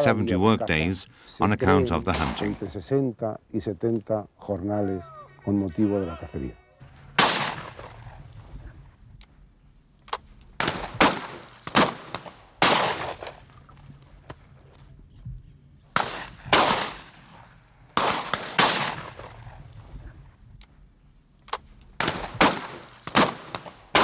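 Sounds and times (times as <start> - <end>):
shotguns firing: 2.0 - 2.8, 6.8 - 8.4, 10.1 - 13.5, 15.9 - 19.7, 21.5 - 24.0.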